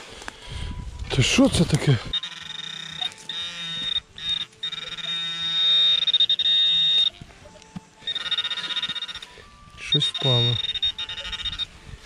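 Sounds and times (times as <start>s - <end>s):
metal detector buzzing tone: 2.1s - 11.8s.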